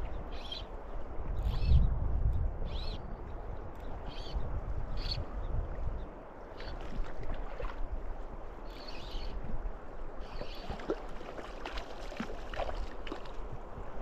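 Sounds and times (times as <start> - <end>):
river water running and lapping: 0.0 - 14.0
small water splashes: 6.4 - 9.3, 10.2 - 14.0.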